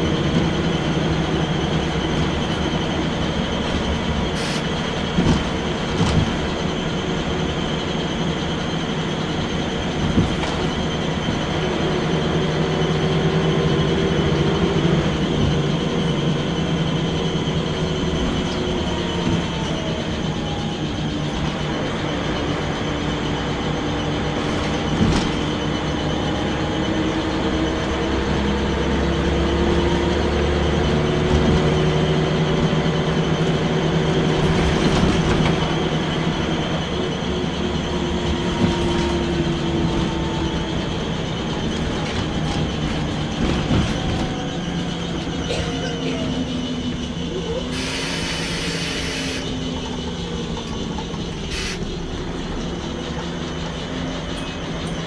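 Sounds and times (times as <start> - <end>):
bus body knocks and rattles: 0.0 - 7.2, 9.7 - 11.8, 18.0 - 20.0, 24.2 - 26.0, 32.6 - 36.4, 37.8 - 47.1
bus diesel engine running: 0.0 - 55.0.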